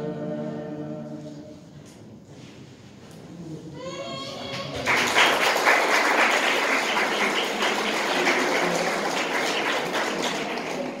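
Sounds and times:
audience applause: 4.2 - 11.0.

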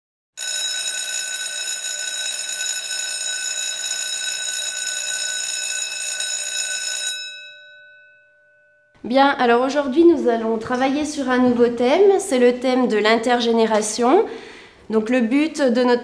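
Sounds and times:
electric bell ringing: 0.4 - 9.0.

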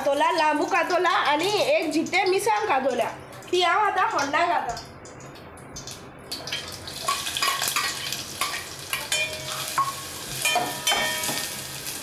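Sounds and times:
onion sizzling in hot oil: 0.0 - 5.0, 5.8 - 12.0.

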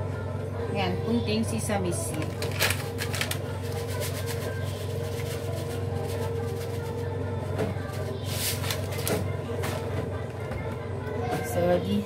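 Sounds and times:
steady low hum: 0.0 - 12.0
plastic bag crinkling: 2.1 - 7.0.

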